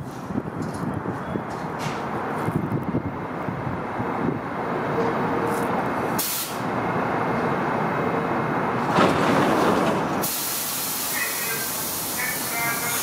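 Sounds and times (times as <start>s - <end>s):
subway train equipment rushing: 0.0s - 13.0s
air hiss: 6.2s - 6.6s, 10.2s - 13.0s.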